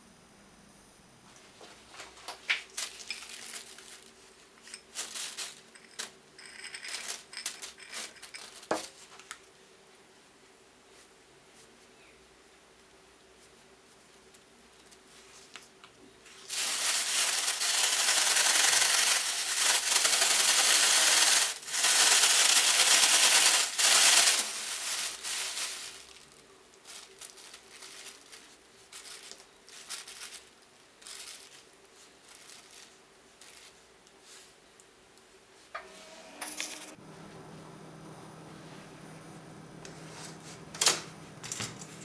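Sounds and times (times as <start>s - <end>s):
plastic bag crinkling: 2.5s - 9.4s, 16.4s - 33.9s.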